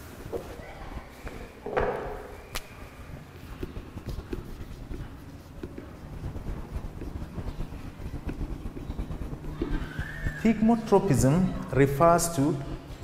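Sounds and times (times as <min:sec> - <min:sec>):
marker pen writing on whiteboard: 0:00.0 - 0:13.0
thump: 0:01.6 - 0:02.3.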